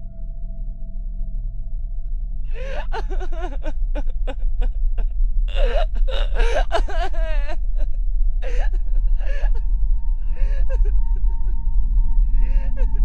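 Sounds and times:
steady low rumble: 0:00.0 - 0:13.0
wordless human vocalising: 0:02.5 - 0:04.7, 0:05.5 - 0:07.8.

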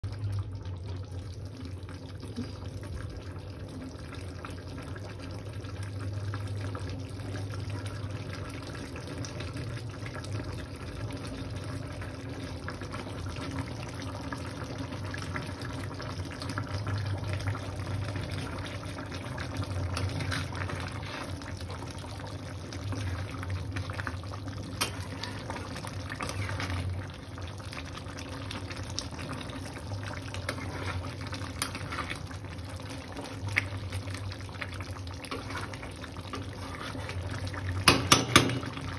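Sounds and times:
curry bubbling in a pan: 0:00.0 - 0:38.9
spatula knocking on pan: 0:37.8 - 0:38.7.

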